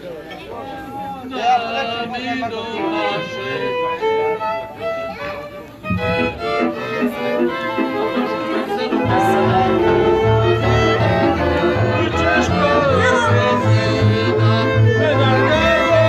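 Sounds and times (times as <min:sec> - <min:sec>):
violin melody: 0:02.2 - 0:16.0
double bass low notes: 0:09.0 - 0:16.0.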